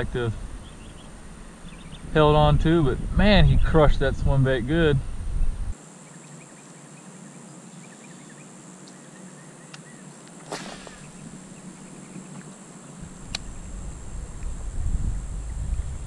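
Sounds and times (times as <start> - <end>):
sharp swish: 10.5 - 11.2.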